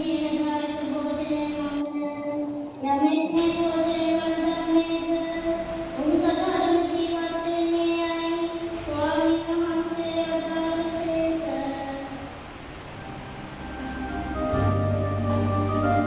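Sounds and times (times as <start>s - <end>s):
child singing into a microphone: 0.0s - 12.3s.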